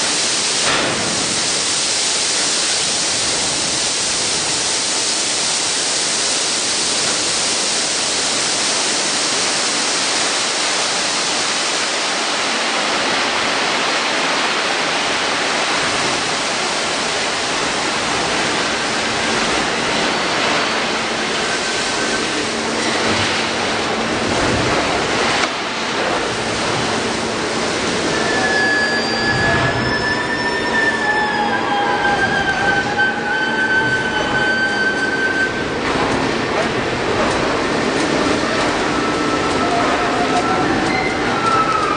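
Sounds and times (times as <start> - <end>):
loud rushing hissing noise: 0.0 - 41.9
faint metallic squeals: 28.1 - 35.7.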